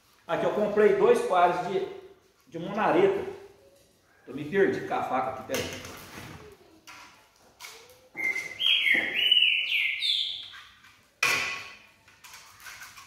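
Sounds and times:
high squeaky chirping: 8.0s - 10.9s.

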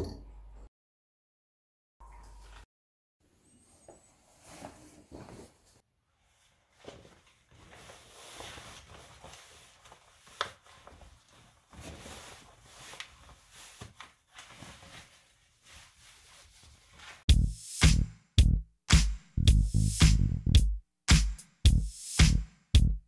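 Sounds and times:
jeans rustling: 4.3s - 17.3s
electronic music beat: 17.3s - 23.0s.

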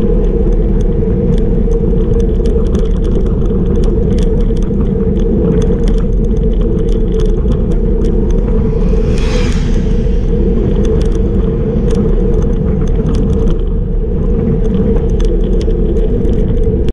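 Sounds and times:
wind and tyre rumble: 0.0s - 16.9s
motorcycle passing: 7.8s - 11.7s.

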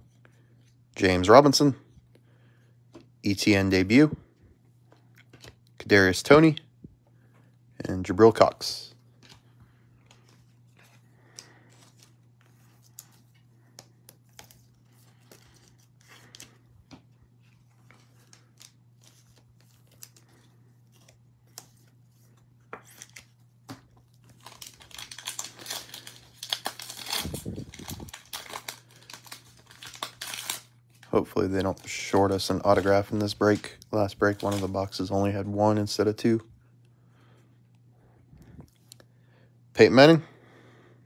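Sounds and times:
foil wrapper crinkling and tearing: 24.2s - 33.6s.

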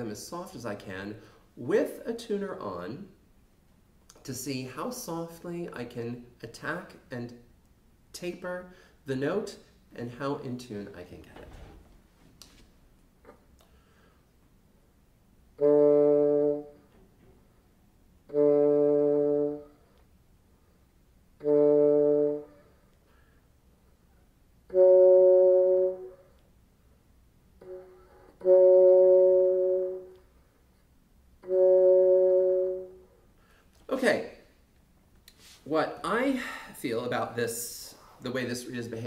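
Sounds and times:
bassoon playing soft notes: 15.6s - 17.3s, 18.3s - 20.0s, 21.4s - 22.9s, 24.1s - 26.4s, 27.6s - 30.4s, 31.4s - 33.3s.

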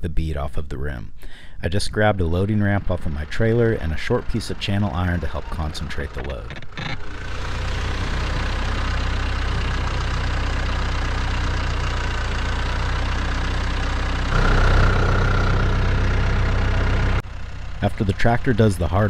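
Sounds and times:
tractor engine running: 2.3s - 19.0s
steady whine: 14.3s - 19.0s.

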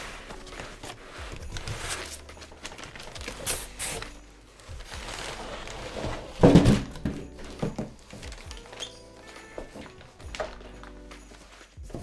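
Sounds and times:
foam scraping against cardboard: 4.8s - 6.5s.

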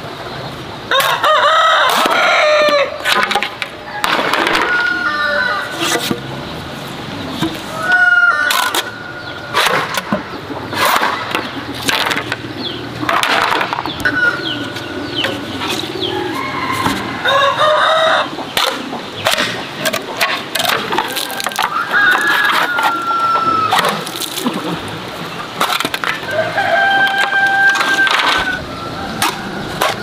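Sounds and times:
rooster crowing: 0.9s - 3.0s, 3.9s - 5.8s, 7.7s - 9.4s, 16.0s - 18.3s, 21.1s - 23.8s, 26.2s - 30.0s
small birds chirping: 8.9s - 13.1s, 13.7s - 17.2s
knife chopping bamboo: 18.6s - 23.0s.

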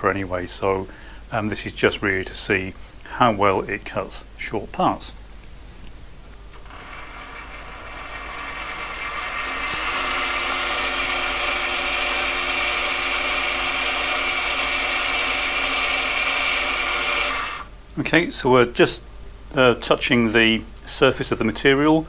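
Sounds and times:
lathe motor whine: 6.6s - 17.7s.

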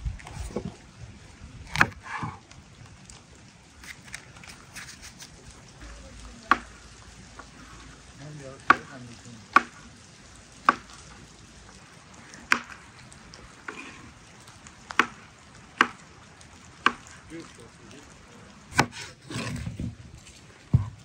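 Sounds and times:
knife knocking on wooden board: 20.7s - 21.0s.

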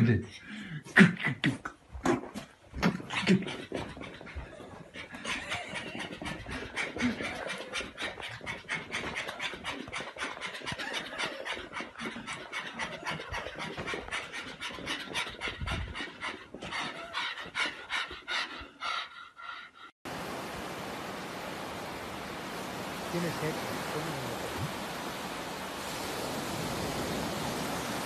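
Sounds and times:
dog panting fast: 3.0s - 19.9s.

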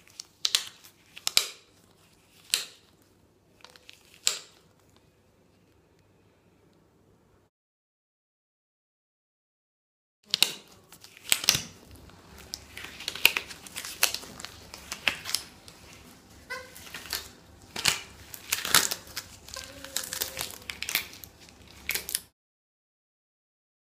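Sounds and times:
latex gloves crinkling and snapping: 0.0s - 5.8s, 10.3s - 22.3s
rubbed latex squeaks: 16.4s - 22.0s.

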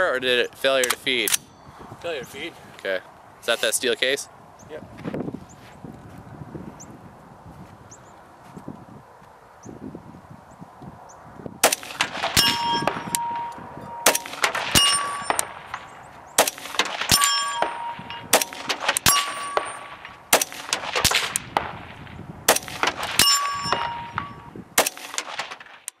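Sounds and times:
bullets striking steel plates: 11.6s - 21.5s, 22.5s - 26.0s
metallic ringing: 11.8s - 20.8s, 22.7s - 24.6s.

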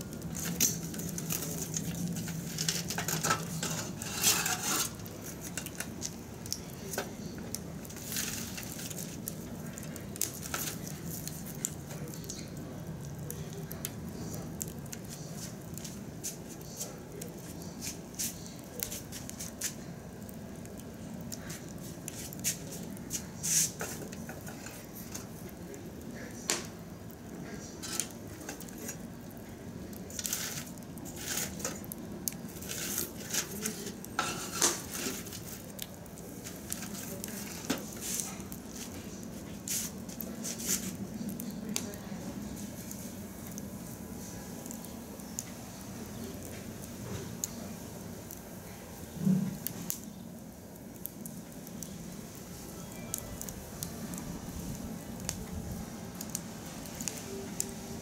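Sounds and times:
wood fire crackling and popping: 0.0s - 58.0s.

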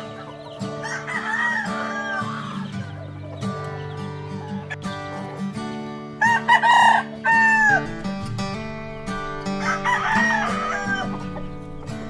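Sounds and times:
background music: 0.0s - 12.0s
rooster crowing: 0.7s - 2.9s, 6.2s - 12.0s.

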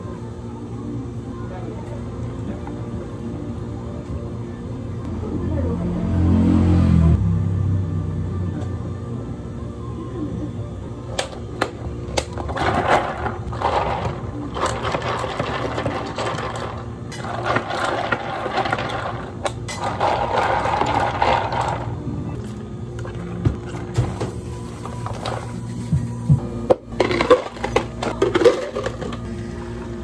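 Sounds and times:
steady low hum: 7.0s - 30.0s.

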